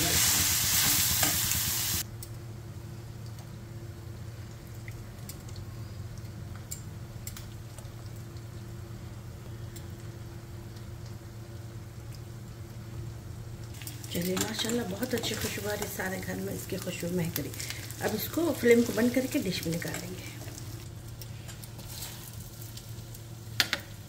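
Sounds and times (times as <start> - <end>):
meat sizzling and stirred: 0.0 - 2.0, 13.7 - 24.0
low steady hum: 0.0 - 24.0
faint ticks and drips: 4.2 - 8.9, 9.5 - 12.8.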